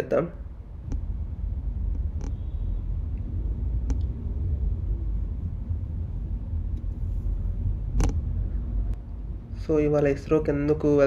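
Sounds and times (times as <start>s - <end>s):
car driving rumble: 0.4s - 11.0s
faint clicks: 3.8s - 4.1s.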